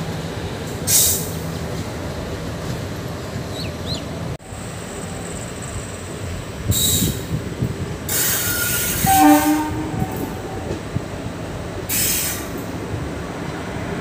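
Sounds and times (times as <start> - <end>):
train rumbling with wheel clacks: 0.0 - 14.0
train horn blast: 8.2 - 10.8.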